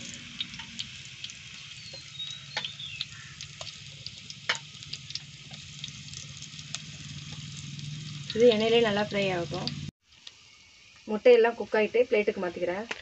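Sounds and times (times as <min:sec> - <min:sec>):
oil popping and crackling: 0:00.0 - 0:11.6
eggs sizzling in hot oil: 0:00.0 - 0:13.0.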